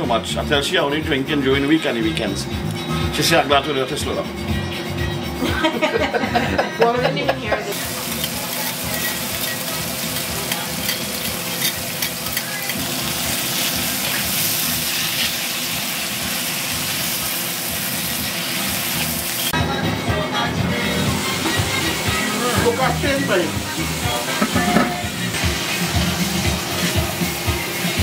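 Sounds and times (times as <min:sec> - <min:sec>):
chicken sizzling in a wok: 0:07.7 - 0:19.6, 0:20.8 - 0:28.0.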